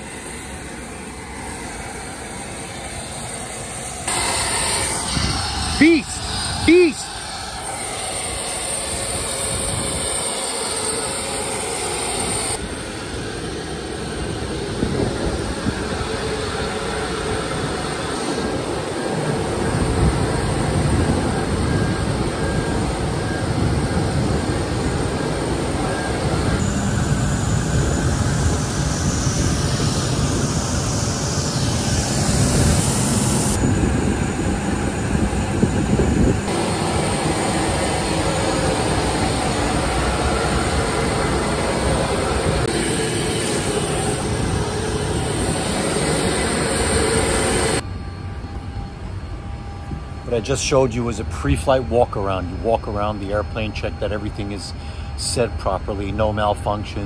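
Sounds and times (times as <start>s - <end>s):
jet turbines rumbling and whining: 0.0s - 57.0s.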